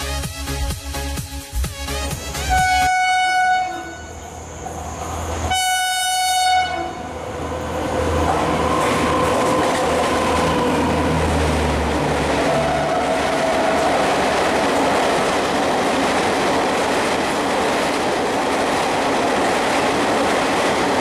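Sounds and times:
train rushing past: 0.0 - 21.0
locomotive horn blasts: 1.9 - 4.3, 5.5 - 7.1.

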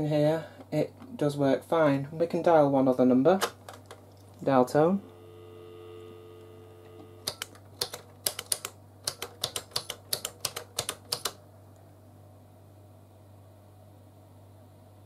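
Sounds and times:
telephone dial tone: 5.1 - 7.5.

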